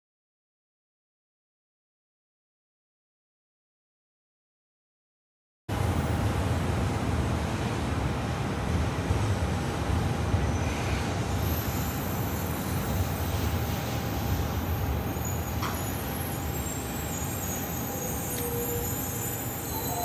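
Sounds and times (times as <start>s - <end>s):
train rumble and hum: 5.7s - 20.0s.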